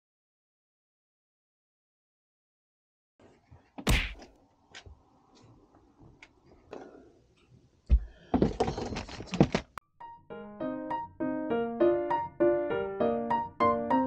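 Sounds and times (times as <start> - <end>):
thump: 3.8 - 4.2
rustling and clattering: 8.3 - 9.8
piano music: 9.8 - 14.0.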